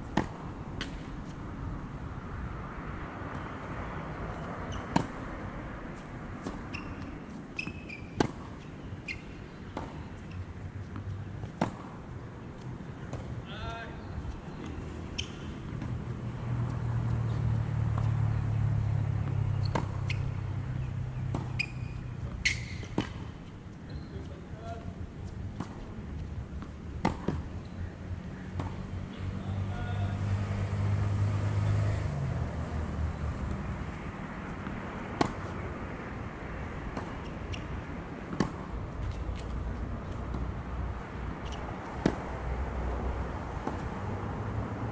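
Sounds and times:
tennis balls struck and bouncing: 0.0 - 1.4, 3.2 - 23.5, 25.2 - 27.7, 28.4 - 31.0, 31.8 - 44.4
distant traffic hum: 0.0 - 44.9
rackets hitting tennis ball: 0.1 - 1.2, 19.2 - 23.4, 34.5 - 40.6, 41.2 - 42.9
ball bouncing on hard court: 4.7 - 5.2, 21.2 - 23.3.

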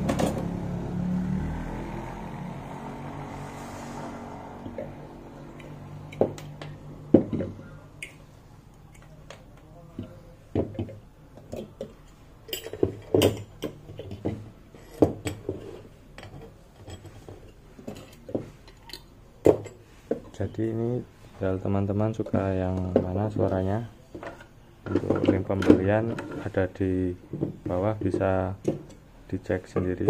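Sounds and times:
metal horns knocking on wooden table: 7.1 - 7.6.

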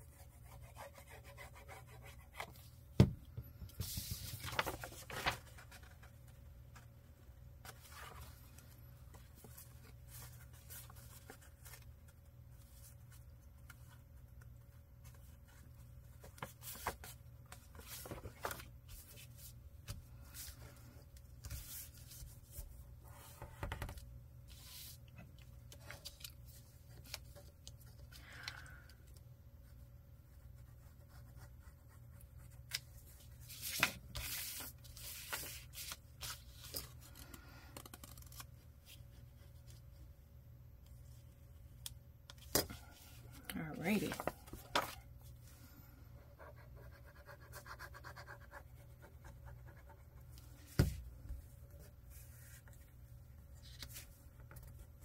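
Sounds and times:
paper tearing and rustling: 4.3 - 5.7.

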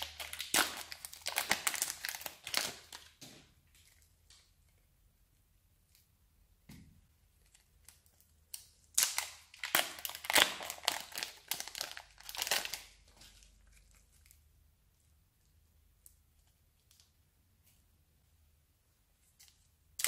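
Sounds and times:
plastic wrapper crinkling: 0.0 - 4.5, 7.4 - 14.5.

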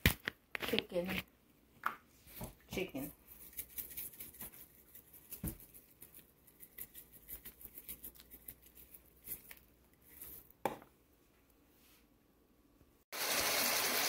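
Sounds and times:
seasoning shaker rattling: 3.2 - 10.4.

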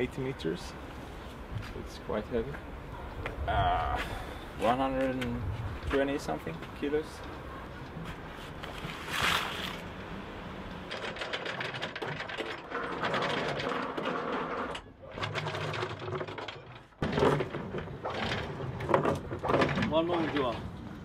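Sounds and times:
anchor chain rattling: 10.9 - 20.7.

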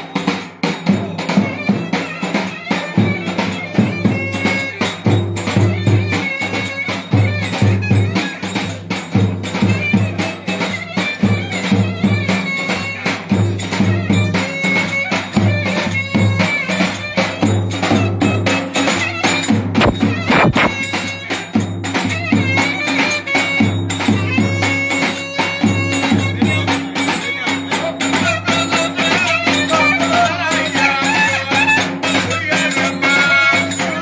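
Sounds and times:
clarinet playing folk dance tune: 18.0 - 21.4
bass drum beat: 19.8 - 20.9.

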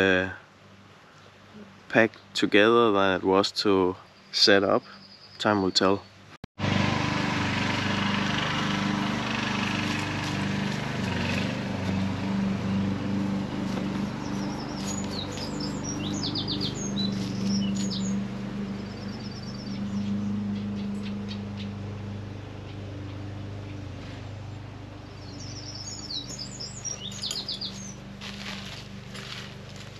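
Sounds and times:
birds chirping: 1.1 - 6.2, 8.1 - 29.9
motor droning: 6.6 - 29.9.

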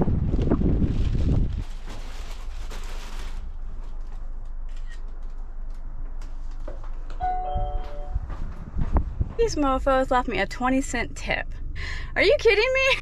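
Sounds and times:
steady low rumble: 0.0 - 13.0
doorbell chime: 7.2 - 8.2.

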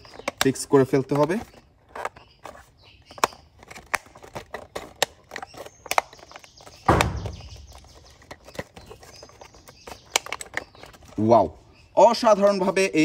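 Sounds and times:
plastic clips snapping: 3.1 - 9.4, 10.0 - 11.0
louder knock: 6.9 - 7.4.

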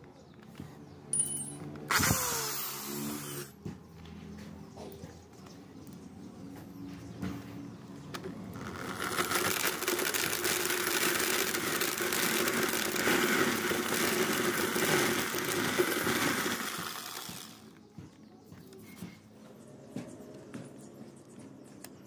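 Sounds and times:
electric drill running: 1.9 - 3.6, 8.5 - 17.8
kernels stripping into bucket: 8.6 - 17.5.

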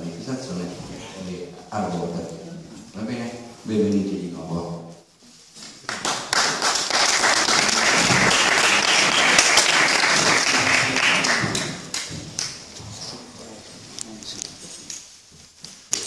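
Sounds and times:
audience applauding: 5.8 - 12.6.

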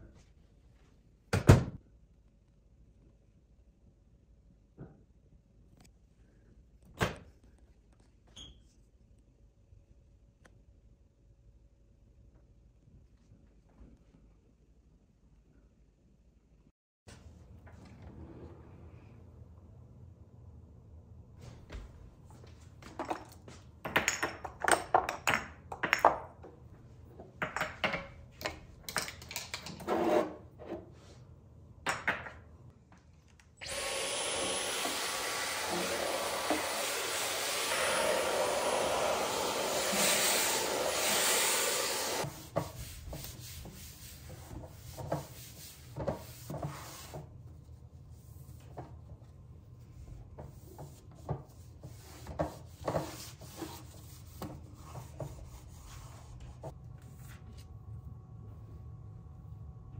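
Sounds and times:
stick vacuum whining: 33.6 - 42.2.

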